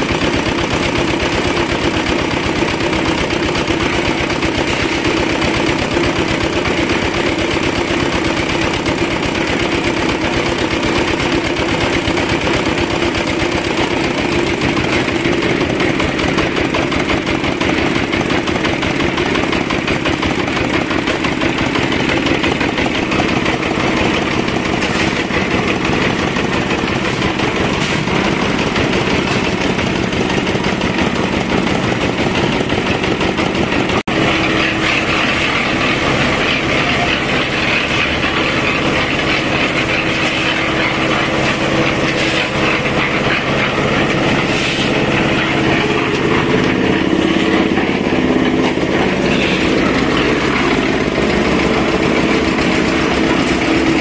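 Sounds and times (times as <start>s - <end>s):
concrete mixer clatter: 0.0s - 54.0s
diesel engine running: 0.0s - 54.0s.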